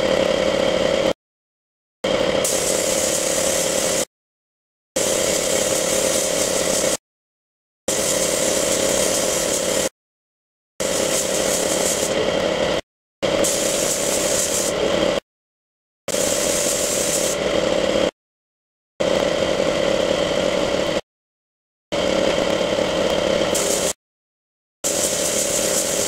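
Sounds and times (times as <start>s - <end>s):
spray gun hissing: 2.4s - 4.1s, 5.0s - 7.0s, 7.9s - 9.9s, 10.8s - 12.2s, 13.4s - 14.9s, 16.1s - 17.4s, 23.5s - 24.0s, 24.8s - 26.0s.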